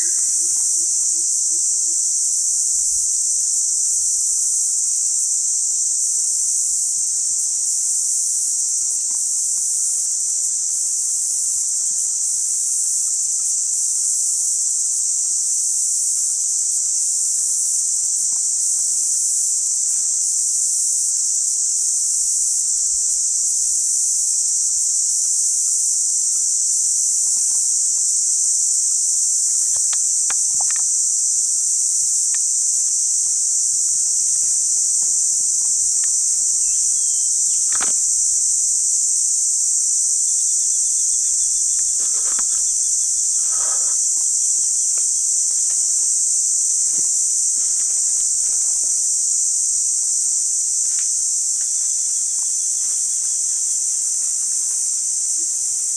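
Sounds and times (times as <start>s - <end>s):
insect chorus shrilling: 0.0s - 55.9s
faint clicks: 29.4s - 31.5s, 32.2s - 32.5s, 34.3s - 38.1s, 41.2s - 46.1s.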